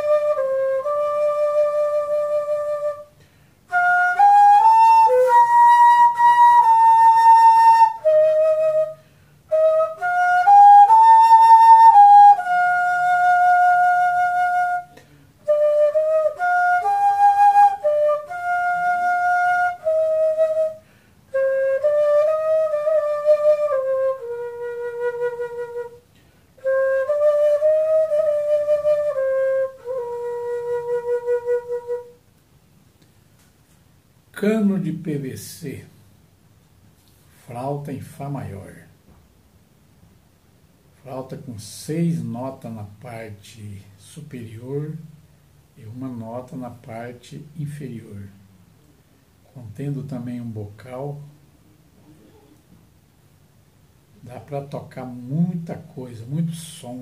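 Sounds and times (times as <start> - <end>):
fife playing a melody: 0.0 - 32.2.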